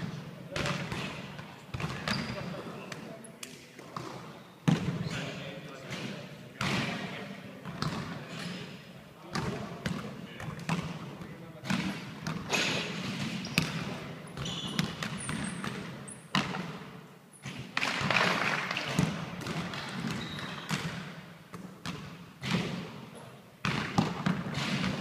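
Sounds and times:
basketball bouncing on wooden floor: 0.6 - 2.4, 11.7 - 18.2, 18.9 - 22.9, 23.6 - 25.0.

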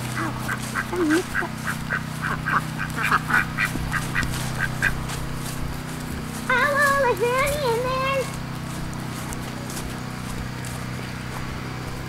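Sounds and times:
duck quacking: 0.0 - 5.1
steady low hum: 0.0 - 12.0.

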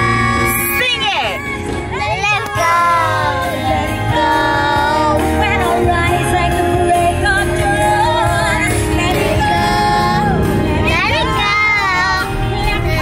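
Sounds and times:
pop song on car stereo: 0.0 - 13.0
girls singing along: 1.6 - 13.0.

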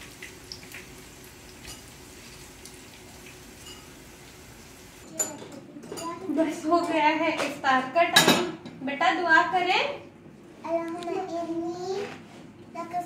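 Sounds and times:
food sizzling in oil: 0.0 - 5.0.

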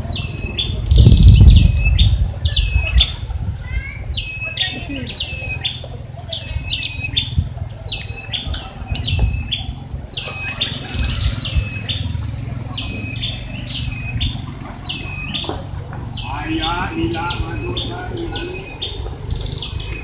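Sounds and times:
steady low rumble: 0.0 - 5.0
bird calling: 0.0 - 20.0.

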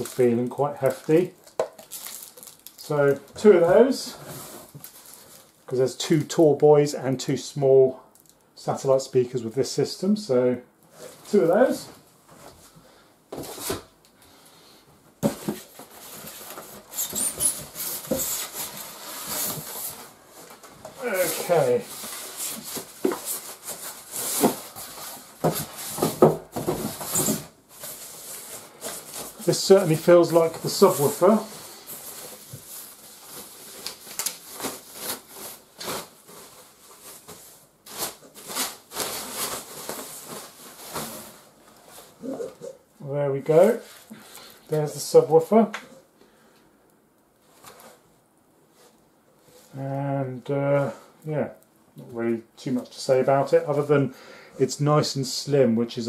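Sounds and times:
polystyrene foam squeaking: 0.0 - 3.3, 15.8 - 20.2, 21.0 - 26.0, 26.9 - 42.8
protective wrapping rustling: 0.0 - 5.7, 15.2 - 42.8.

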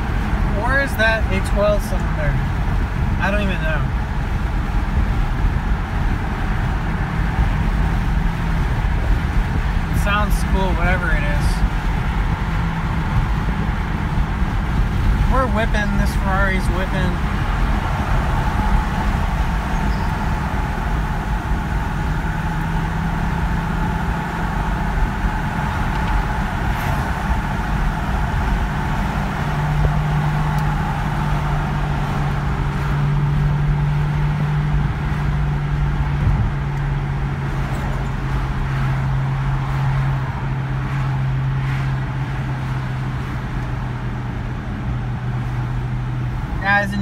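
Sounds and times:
car engine drone: 0.0 - 47.0
tyre and wind noise: 11.6 - 15.4, 17.2 - 46.6.

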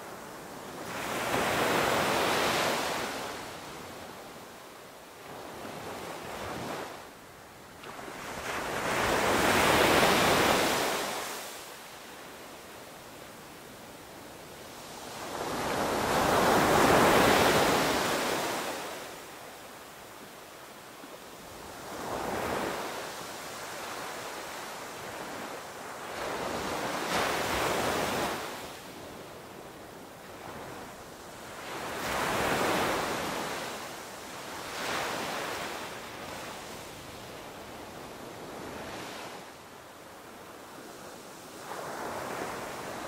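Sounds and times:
small waves breaking on sand: 14.7 - 19.4, 30.0 - 39.6.

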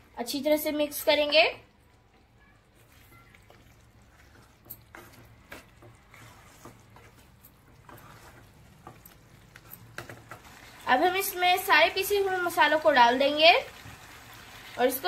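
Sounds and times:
spoon scraping a pan: 2.8 - 10.7.

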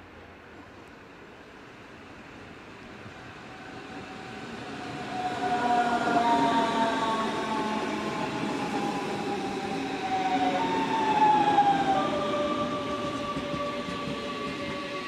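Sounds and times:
electric train traction whine: 2.0 - 15.0
train running gear rumble: 6.7 - 15.0.

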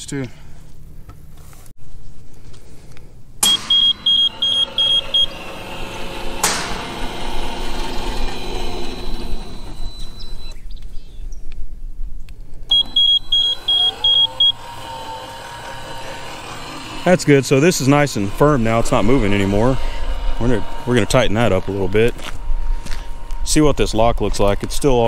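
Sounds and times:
gate opener motor humming: 3.0 - 10.6, 12.6 - 25.0
high electronic warning beeps: 3.4 - 5.4, 9.6 - 10.6, 12.7 - 14.6.

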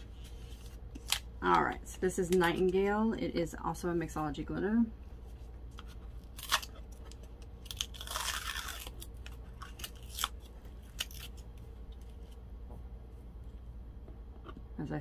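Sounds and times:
crinkly seal tearing: 6.2 - 12.0.

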